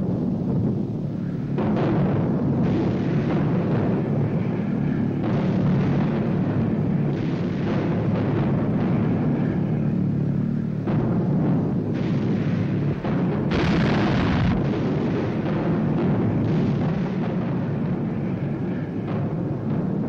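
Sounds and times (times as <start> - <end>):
anti-aircraft gunfire and flak bursts: 0.0 - 20.0
sharp blasts: 11.2 - 17.4.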